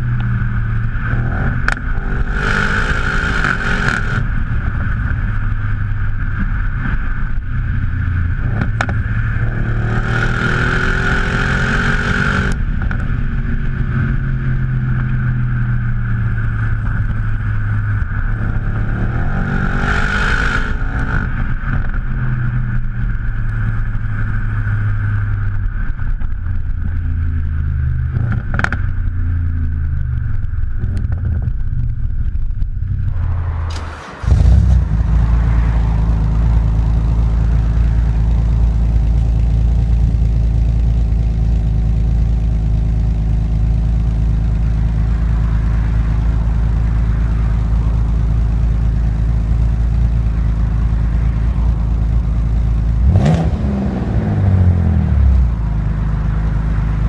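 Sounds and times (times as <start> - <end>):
car exhaust engine note: 0.0 - 57.0
loud rushing noise: 33.0 - 39.5.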